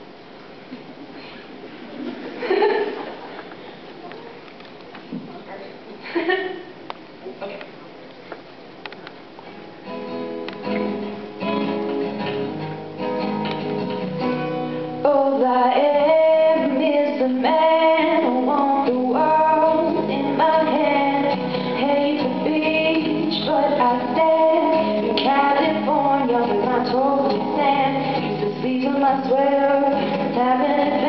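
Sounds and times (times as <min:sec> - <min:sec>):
acoustic guitar picking and strumming: 0:09.4 - 0:31.0
young woman singing: 0:15.0 - 0:31.0.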